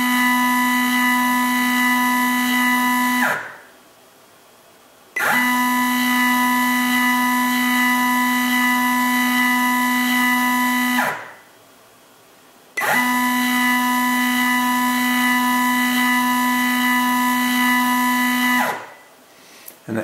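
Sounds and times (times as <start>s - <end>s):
stepper motor whining: 5.2s - 11.2s, 12.8s - 18.8s.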